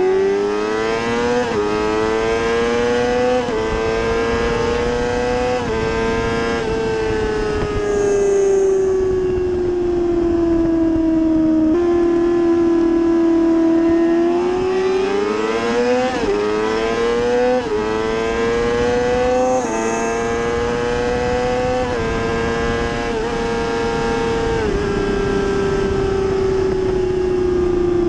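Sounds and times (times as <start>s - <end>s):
motorcycle engine upshifting: 0.0s - 27.8s
wind rushing: 3.5s - 11.4s, 14.2s - 28.0s.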